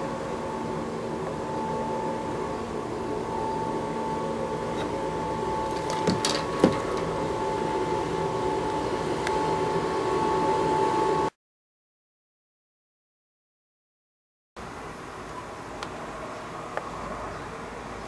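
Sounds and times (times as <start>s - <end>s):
road sweeper mechanical drone: 0.0s - 11.3s
suction fan whine: 0.0s - 11.4s, 14.6s - 18.0s.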